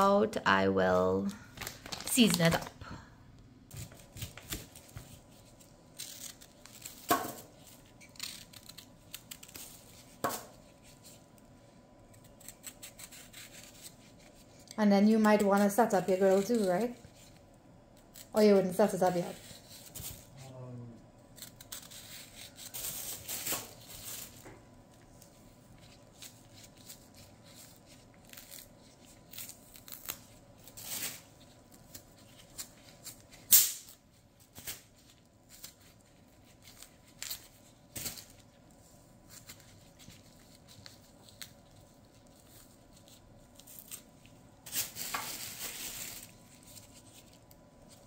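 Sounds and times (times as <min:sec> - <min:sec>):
knife scraping peel: 0:03.7 - 0:11.2, 0:12.1 - 0:17.4, 0:21.3 - 0:24.3
peel tearing: 0:03.7 - 0:11.2, 0:12.0 - 0:14.6, 0:18.0 - 0:18.4, 0:21.3 - 0:24.4, 0:25.8 - 0:38.4
rustle of peel or plastic bag: 0:21.4 - 0:24.5, 0:25.2 - 0:48.0.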